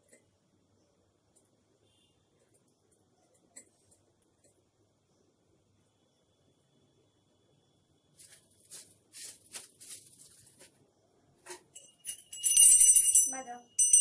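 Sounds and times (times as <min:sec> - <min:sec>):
scratchy rustling: 0:08.2 - 0:10.8
small bell ringing: 0:11.7 - 0:14.0.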